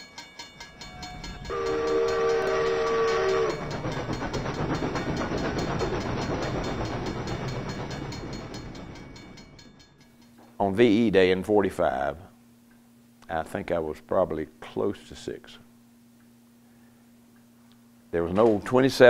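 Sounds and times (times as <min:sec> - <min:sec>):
locomotive chime whistle: 0:00.0 - 0:10.2
steam locomotive chuffing: 0:00.4 - 0:10.2.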